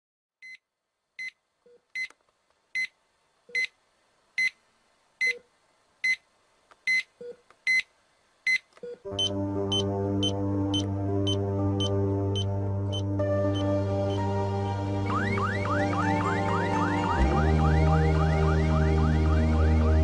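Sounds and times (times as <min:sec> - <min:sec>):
song with heavy bass line: 0:09.1 - 0:20.0
electronic alarm beeping: 0:09.2 - 0:14.2, 0:15.1 - 0:19.2.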